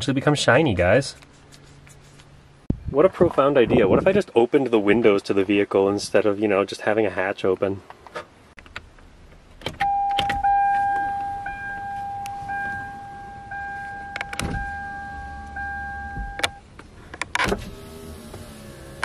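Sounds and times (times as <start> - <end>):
dashboard chime: 9.8 - 16.6
ignition button click: 9.8 - 16.6
power window motor whine: 17.5 - 19.0.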